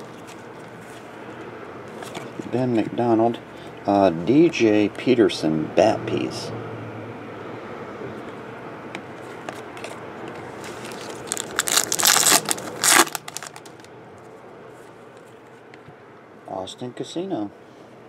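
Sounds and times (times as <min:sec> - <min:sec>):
foil wrapper tearing and crinkling: 0:10.6 - 0:13.9.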